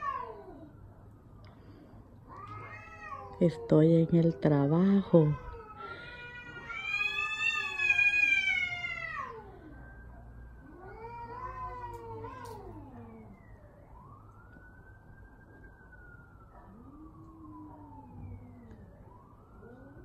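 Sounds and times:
cats yowling in a fight: 0.0s - 0.8s, 2.2s - 4.1s, 4.8s - 10.0s, 10.6s - 13.5s, 16.6s - 20.0s.

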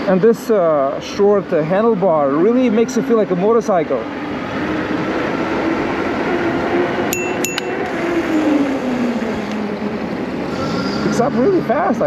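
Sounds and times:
wind and road noise: 0.0s - 12.0s
sharp metallic clinks: 7.1s - 7.9s.

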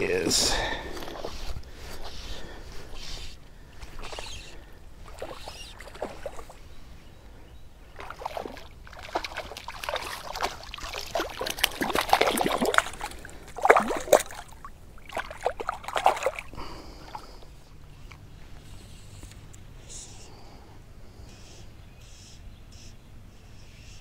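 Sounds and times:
fish splashing in water: 3.6s - 6.6s, 7.9s - 17.5s
water dripping: 8.0s - 16.6s.

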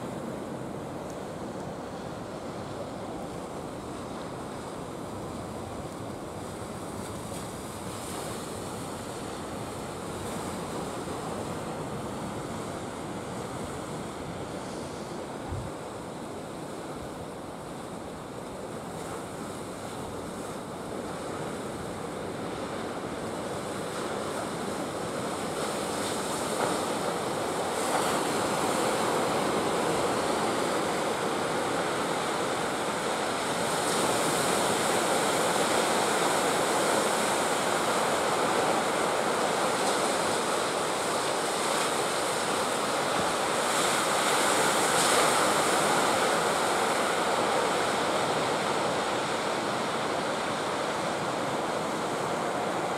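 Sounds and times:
ocean surf breaking: 0.0s - 52.9s.

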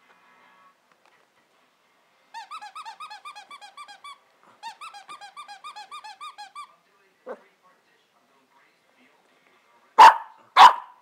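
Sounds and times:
puppy whining in high squeals: 2.4s - 6.7s.

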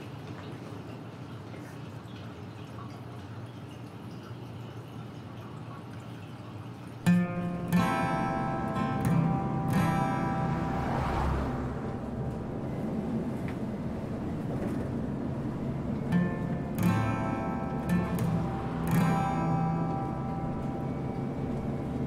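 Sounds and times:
acoustic guitar strumming: 7.0s - 22.0s
bus engine rumble: 7.4s - 22.0s.

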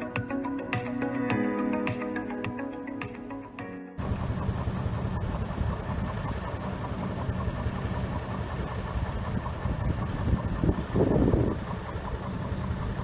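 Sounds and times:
diesel locomotive engine idling: 4.0s - 13.0s.

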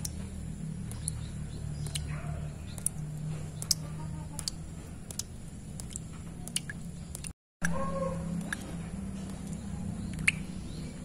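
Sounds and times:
water drops plinking into puddle: 0.0s - 0.2s, 0.8s - 8.7s, 9.3s - 10.5s.

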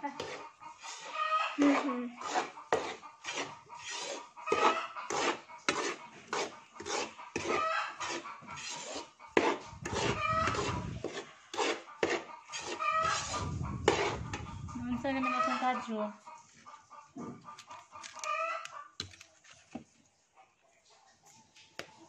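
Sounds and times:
metal ladle scraping metal pan: 0.2s - 15.6s.

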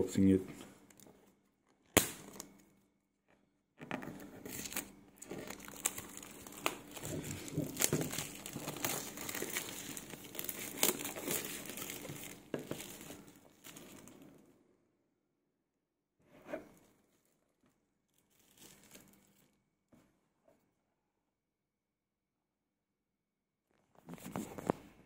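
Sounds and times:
plastic crinkling and crackling: 0.8s - 14.4s, 16.9s - 19.6s
plastic shrink-wrap tearing: 4.4s - 14.2s, 18.1s - 19.4s.

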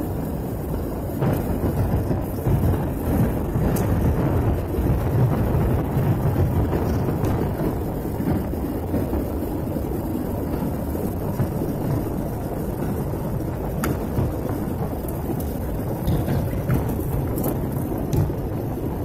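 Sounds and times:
airliner cabin rumble: 0.0s - 19.0s.

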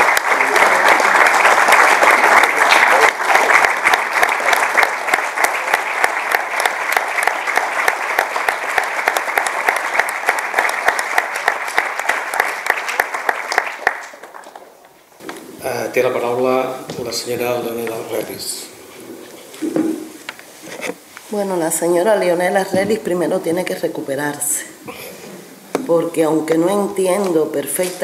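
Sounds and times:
audience applauding: 0.0s - 14.8s.

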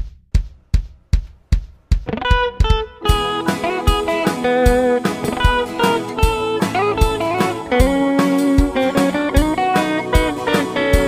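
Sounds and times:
drumbeat: 0.0s - 11.0s
guitar: 2.0s - 11.0s
band playing background music: 3.0s - 11.0s.

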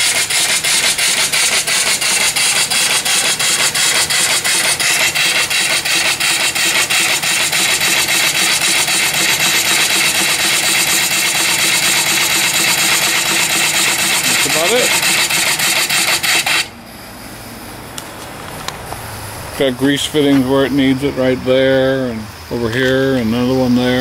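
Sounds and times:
steam hissing from pipe: 0.0s - 17.0s
steam engine exhaust chuffing: 0.0s - 24.0s.

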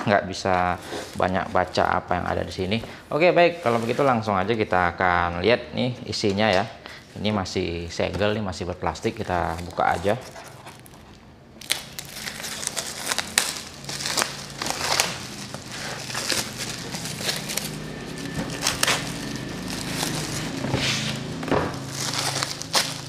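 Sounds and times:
shrink wrap crinkling: 8.8s - 23.0s.

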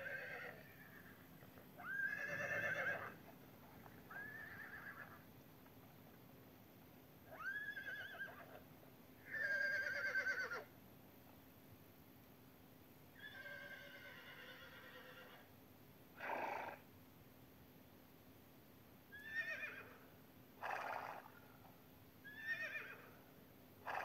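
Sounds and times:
horse whinnying: 0.0s - 1.2s, 1.8s - 3.2s, 3.9s - 5.2s, 7.3s - 8.6s, 9.2s - 10.7s, 13.2s - 15.4s, 16.2s - 16.8s, 19.2s - 20.0s, 20.6s - 21.3s, 22.3s - 23.1s.

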